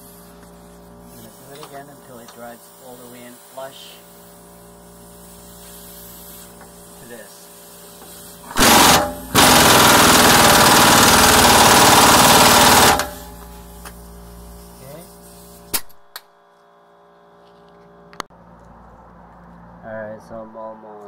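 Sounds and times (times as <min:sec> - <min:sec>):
pneumatic impact wrench hammering: 0:07.7 - 0:14.4.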